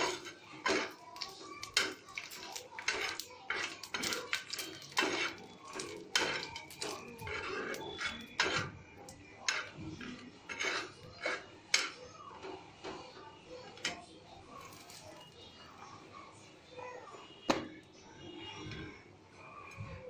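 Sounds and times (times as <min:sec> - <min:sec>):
spices frying in oil: 0:00.0 - 0:11.9
metal spatula scraping pan: 0:00.0 - 0:13.0.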